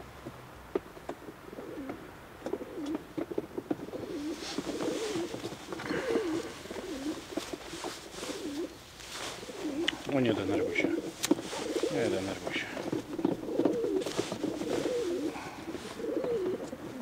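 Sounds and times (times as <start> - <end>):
clicks and rustling of pigeon: 0.7 - 17.0
pigeons cooing: 1.1 - 17.0.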